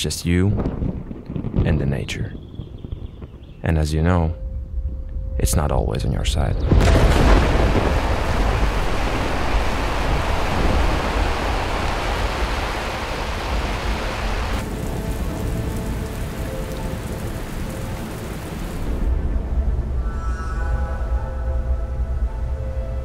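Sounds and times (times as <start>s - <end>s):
heavy rain falling: 6.8s - 19.1s.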